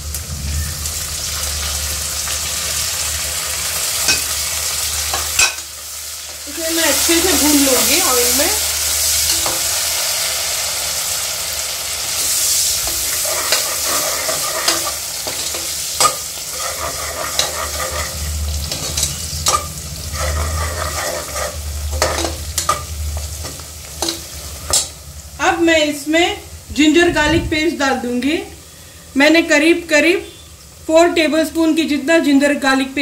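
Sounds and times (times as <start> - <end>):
vegetables sizzling in hot oil: 0.0 - 27.1
spoon scraping against pot: 12.2 - 24.9.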